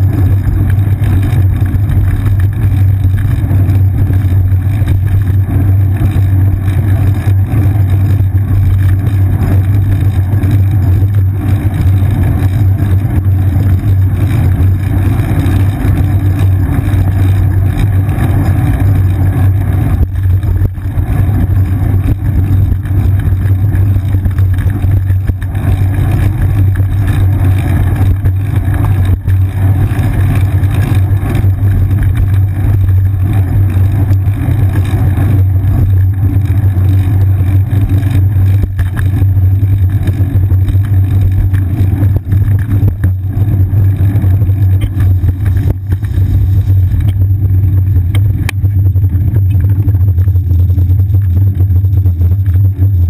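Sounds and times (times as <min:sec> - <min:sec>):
road vibration rumble: 0:00.0 - 0:53.0.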